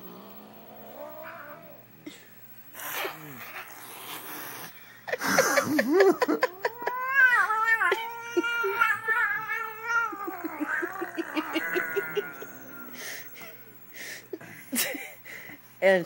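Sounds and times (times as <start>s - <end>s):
cat yowling: 6.4s - 13.3s.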